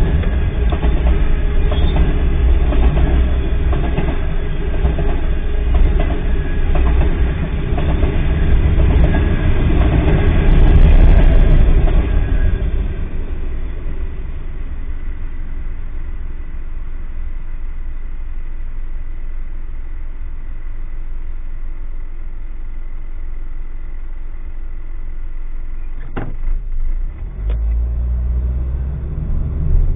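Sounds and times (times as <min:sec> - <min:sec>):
car engine idling: 0:11.6 - 0:27.2.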